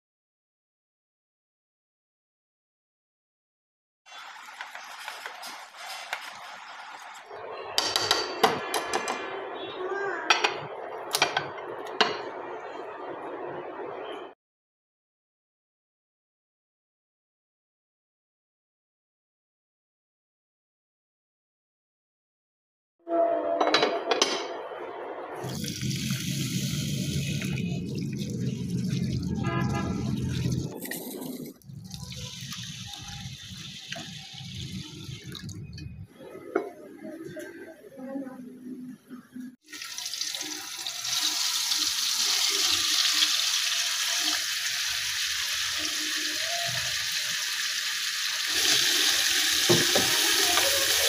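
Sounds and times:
chicken sizzling in frying pan: 0:04.1 - 0:07.3, 0:39.7 - 0:51.0
water pouring into steel bowl: 0:04.1 - 0:07.3, 0:25.4 - 0:35.7, 0:39.7 - 0:51.0.

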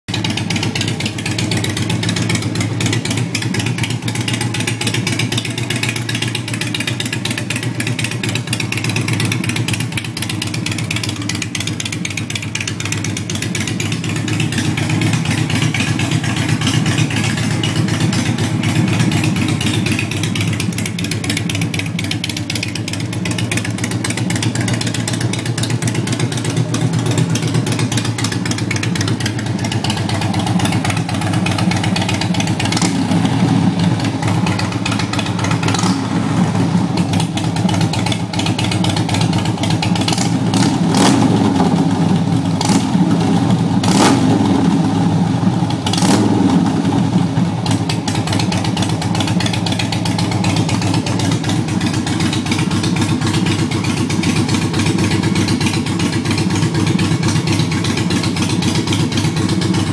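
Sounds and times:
motorcycle engine idling: 0:00.1 - 0:59.9.

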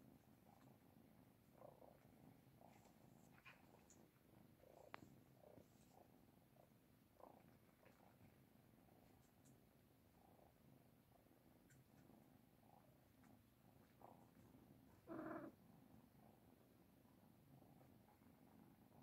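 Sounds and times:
cats purring: 0:00.0 - 0:19.0
soft rustling: 0:01.9 - 0:06.2.

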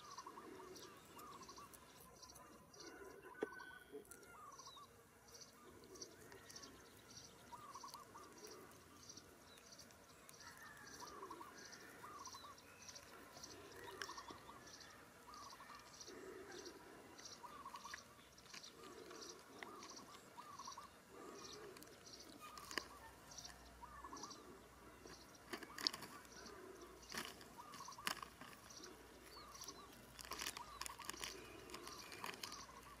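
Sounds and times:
faint bird calls: 0:00.0 - 0:33.0.

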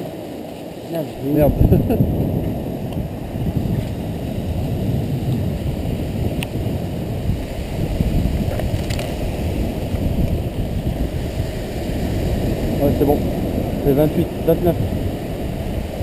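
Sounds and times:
wind buffeting microphone: 0:01.0 - 0:16.0.

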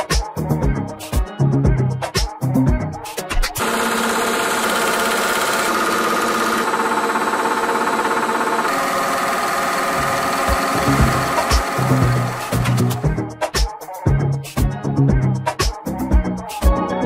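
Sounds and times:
music: 0:00.0 - 0:06.7, 0:09.0 - 0:17.0
die-cutting machine pulsing hum: 0:03.6 - 0:13.0.

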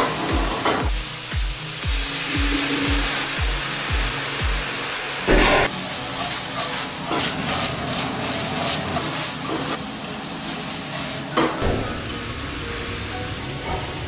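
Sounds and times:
food sizzling in frying pan: 0:00.0 - 0:14.0
utensils clinking and scraping pan: 0:05.8 - 0:09.8.

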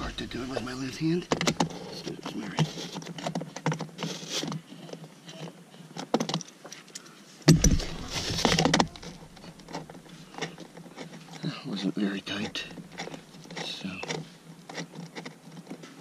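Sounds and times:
thump: 0:07.5 - 0:09.2.

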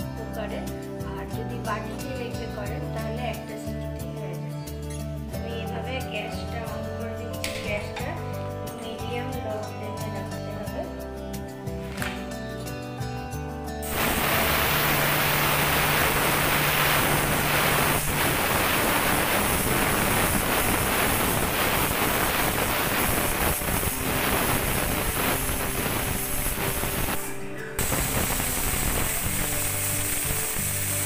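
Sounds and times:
pressure cooker hissing steam: 0:13.8 - 0:31.0.

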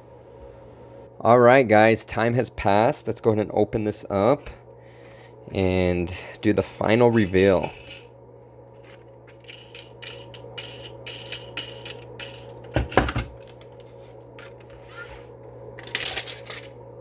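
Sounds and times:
metal plate scraping: 0:06.8 - 0:08.1, 0:08.8 - 0:12.5.

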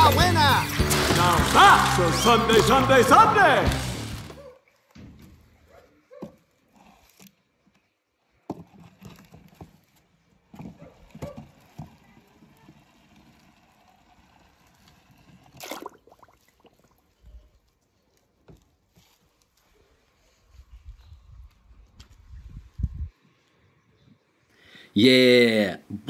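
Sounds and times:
toy truck rattling over sticks: 0:00.0 - 0:04.4, 0:11.0 - 0:15.6
splash into water: 0:15.6 - 0:16.7.

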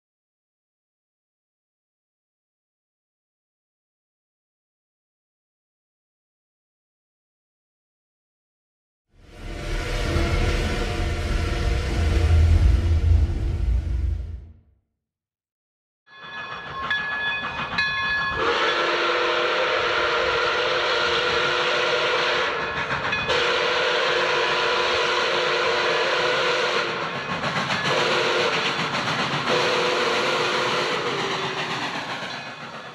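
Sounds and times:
steam train chuffing: 0:16.2 - 0:32.9
steam whistle blasts: 0:18.4 - 0:27.1, 0:27.8 - 0:28.8, 0:29.5 - 0:31.5.

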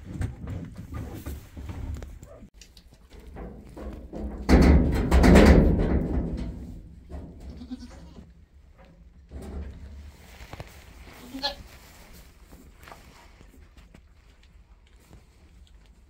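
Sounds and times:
goat bleating: 0:07.4 - 0:08.3, 0:11.2 - 0:11.7.

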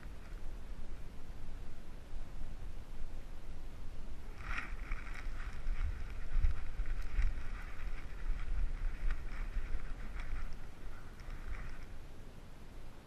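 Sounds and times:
scratchy rustle: 0:00.0 - 0:01.2, 0:04.2 - 0:12.1
wind on camera housing: 0:00.0 - 0:12.4.

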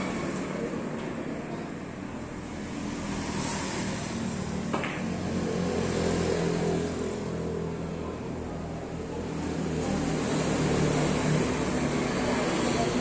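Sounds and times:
cue striking billiard ball: 0:04.7 - 0:05.2.

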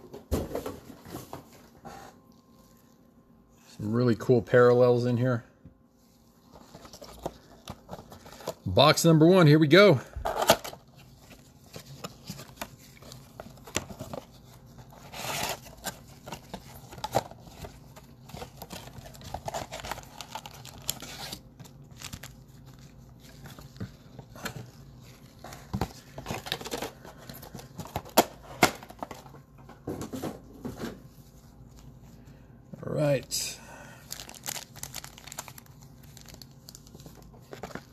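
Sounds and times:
plastic wrapping tearing: 0:11.8 - 0:23.8, 0:34.1 - 0:37.9.

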